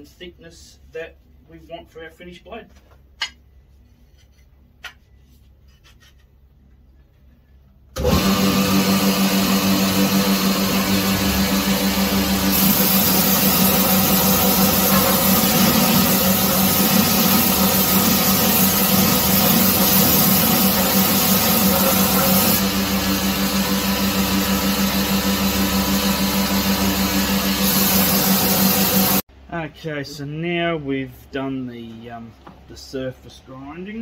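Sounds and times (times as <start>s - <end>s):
belt grinder motor humming: 8.0s - 29.2s.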